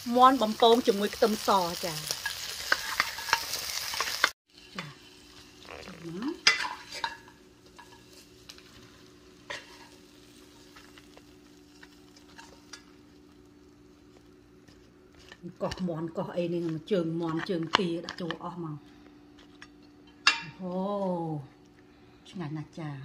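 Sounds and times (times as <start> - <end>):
chicken sizzling in a wok: 0.0 - 17.2
spatula scraping wok: 1.4 - 13.1.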